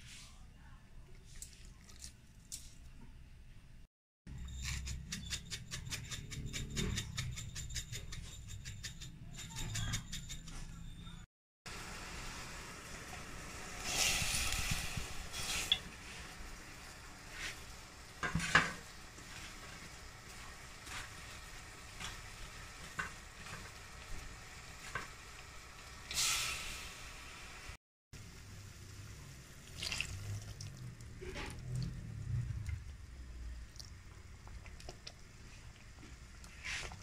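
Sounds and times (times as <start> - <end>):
broth simmering in a pot: 11.7 - 37.0
short hiss: 26.1 - 27.0.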